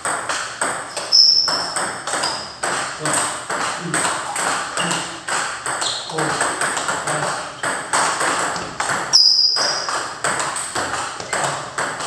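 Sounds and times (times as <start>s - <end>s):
table tennis ball taps: 0.0s - 12.0s
loud high squeak: 1.1s - 2.5s, 9.1s - 9.9s.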